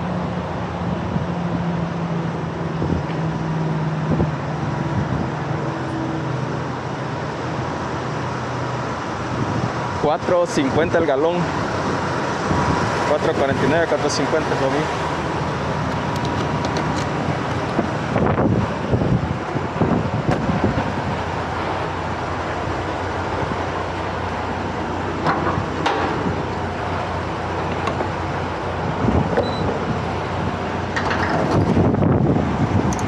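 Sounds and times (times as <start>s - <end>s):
diesel truck engines idling: 0.0s - 33.0s
wind noise: 2.4s - 5.8s, 9.1s - 10.9s, 11.5s - 13.8s, 15.0s - 22.3s, 25.2s - 33.0s.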